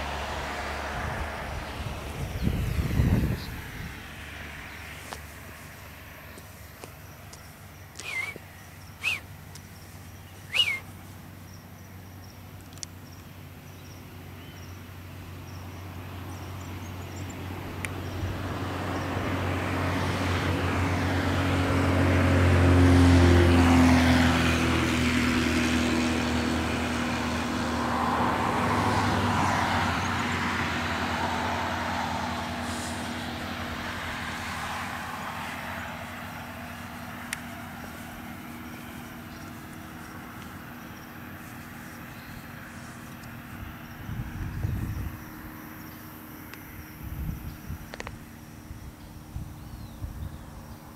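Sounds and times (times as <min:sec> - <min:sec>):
road vehicle passing: 0:00.0 - 0:50.9.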